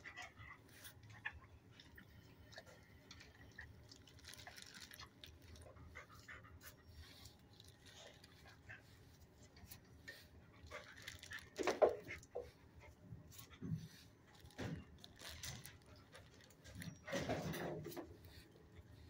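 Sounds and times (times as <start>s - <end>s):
dog moving on kennel floor: 14.5s - 18.2s.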